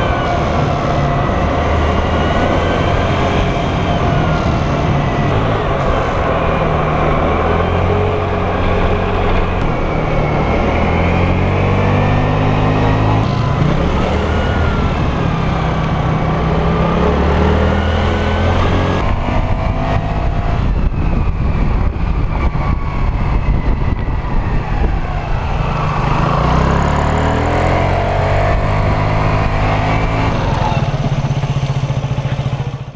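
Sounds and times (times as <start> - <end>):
wind and road noise: 0.0 - 32.9
scooter engine running: 28.5 - 32.9.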